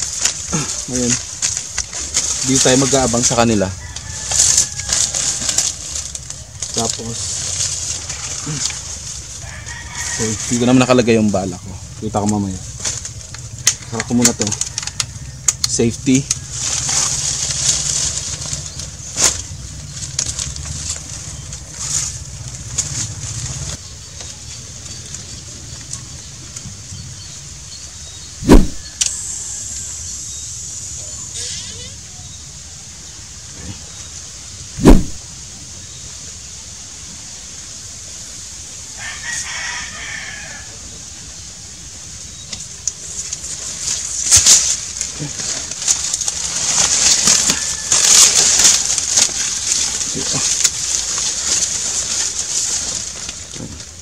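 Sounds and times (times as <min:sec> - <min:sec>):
steady high hiss: 0:00.0 - 0:12.8, 0:27.4 - 0:53.8
dry leaves and clothing rustling: 0:00.0 - 0:54.0
rooster crowing: 0:03.4 - 0:05.8, 0:08.0 - 0:11.1, 0:13.9 - 0:17.0, 0:38.9 - 0:41.2, 0:46.8 - 0:50.4
low rumble: 0:28.4 - 0:29.1.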